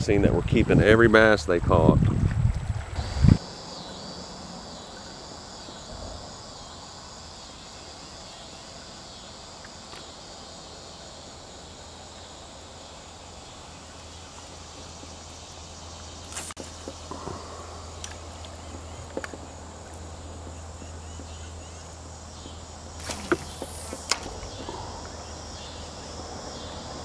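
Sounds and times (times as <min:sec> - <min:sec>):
insects chirring: 0:03.0 - 0:27.0
pulsing high buzz: 0:21.6 - 0:27.0.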